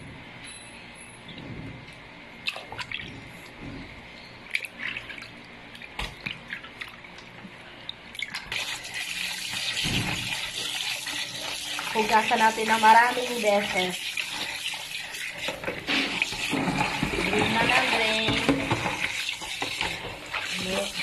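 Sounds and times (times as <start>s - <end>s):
tap water running: 4.5s - 21.0s.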